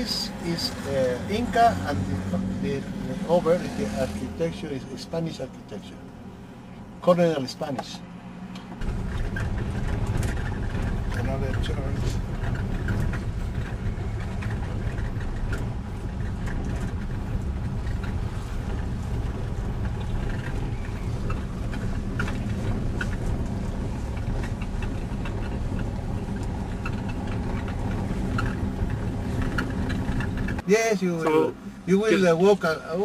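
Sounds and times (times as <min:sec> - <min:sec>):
vehicle engine rumbling: 0:00.0 - 0:33.0
small clicks and rattles: 0:08.6 - 0:30.6.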